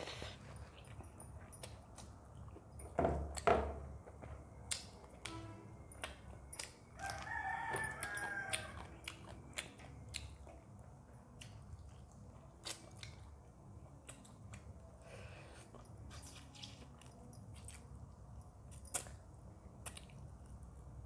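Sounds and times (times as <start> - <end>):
wet chewing: 4.0 - 18.0.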